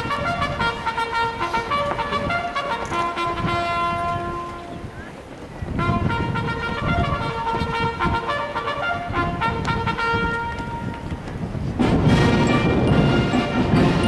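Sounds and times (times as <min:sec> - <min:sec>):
brass band playing held notes: 0:00.0 - 0:05.0, 0:05.7 - 0:14.0
low drums: 0:09.5 - 0:14.0.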